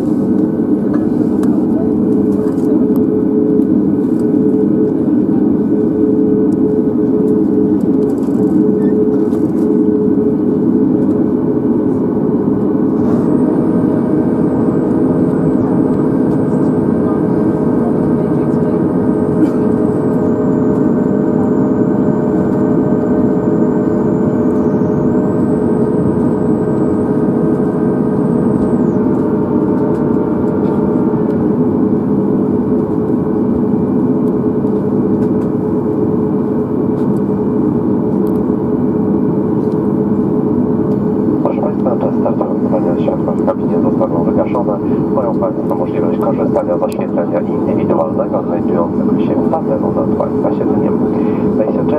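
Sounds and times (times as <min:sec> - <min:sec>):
airplane cabin hum: 0:00.0 - 0:51.9
faint high whine: 0:01.7 - 0:34.6.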